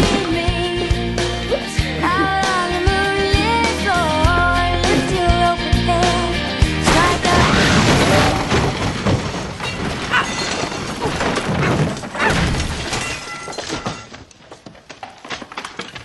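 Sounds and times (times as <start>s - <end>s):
person tumbling down wooden stairs: 6.8s - 16.0s.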